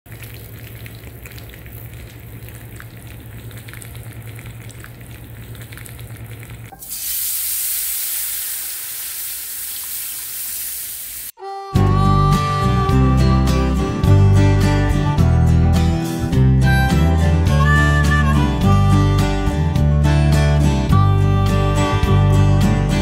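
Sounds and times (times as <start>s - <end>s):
fat sizzling in a saucepan: 6.7s - 11.4s
broth poured into hot fat hissing: 6.8s - 11.3s.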